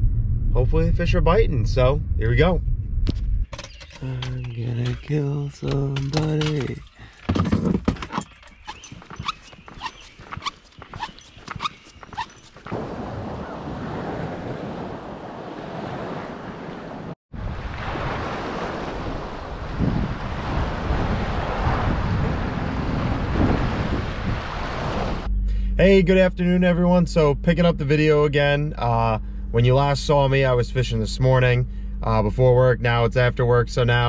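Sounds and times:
wind noise on microphone: 0.0s - 25.7s.

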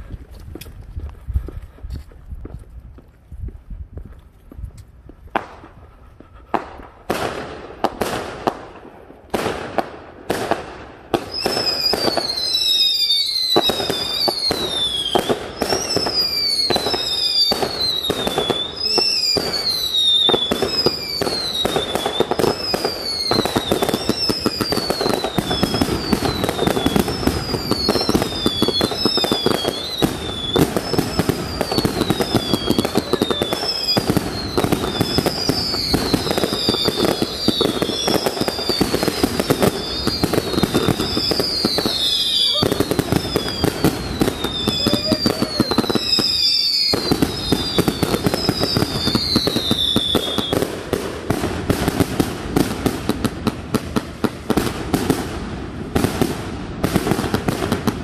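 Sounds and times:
crackling firework shots: 5.0s - 58.0s
firework bangs: 5.2s - 58.0s
falling firework whistles: 11.1s - 50.9s.

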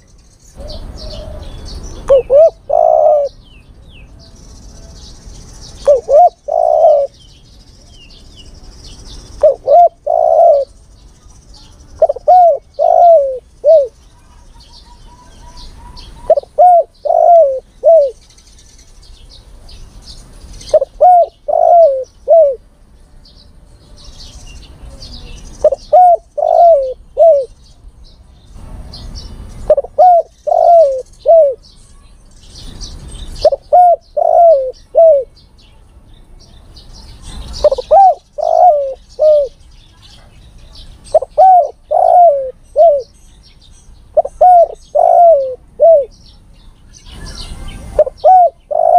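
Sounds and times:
small birds chirping: 0.0s - 48.9s
dove cooing: 0.6s - 3.4s, 5.7s - 7.2s, 9.4s - 10.8s, 12.0s - 14.0s, 14.8s - 18.2s, 20.6s - 22.6s, 24.9s - 27.6s, 29.7s - 31.6s, 33.4s - 35.3s, 37.6s - 39.6s, 41.1s - 43.1s, 44.2s - 46.2s, 47.8s - 48.9s.

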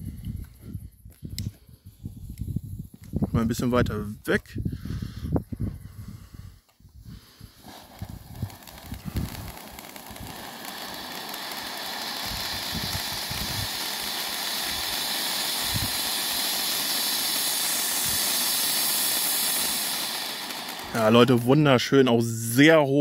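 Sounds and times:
firework fountain hissing: 7.1s - 21.9s.

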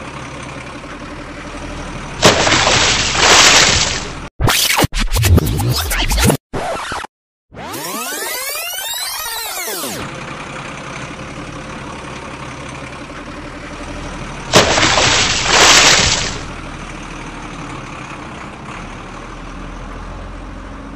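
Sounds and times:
truck engine running: 0.0s - 4.3s, 9.5s - 20.9s
splash and crash into mud: 2.2s - 4.3s, 14.5s - 16.5s.

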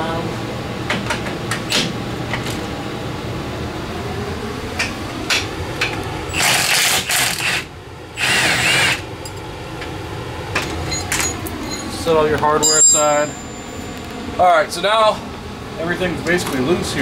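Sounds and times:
handheld power tool running: 6.3s - 9.0s
metal tools clinking: 12.6s - 14.1s.

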